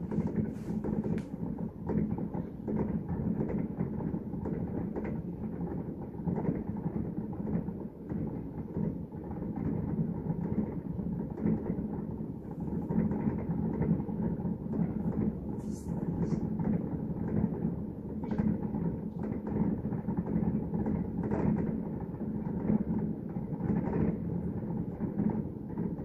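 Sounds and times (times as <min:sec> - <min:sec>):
faint fireworks crackles: 0:00.0 - 0:04.8, 0:12.4 - 0:26.0
distant fireworks rumble: 0:00.0 - 0:26.0.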